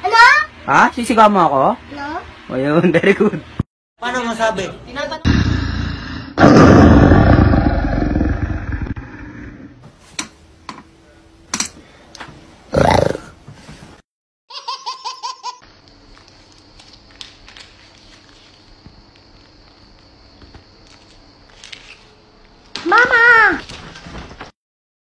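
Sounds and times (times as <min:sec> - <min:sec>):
loud rough vocal outburst: 0:05.2 - 0:09.7, 0:12.7 - 0:13.3.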